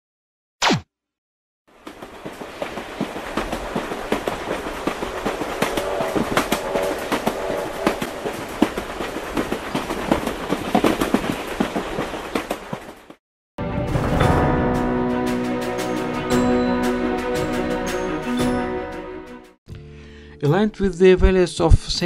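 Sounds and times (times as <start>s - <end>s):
train wheels clicking on rails: 1.8s - 13.2s.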